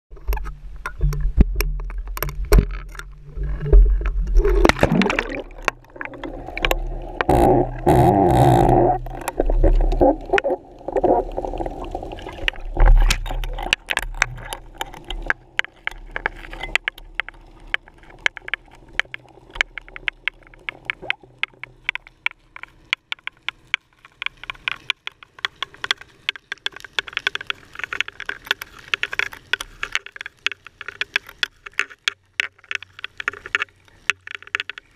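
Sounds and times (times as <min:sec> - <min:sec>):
underwater clicks and ticks: 0:00.1 - 0:34.9
water rushing and gurgling: 0:00.2 - 0:23.2.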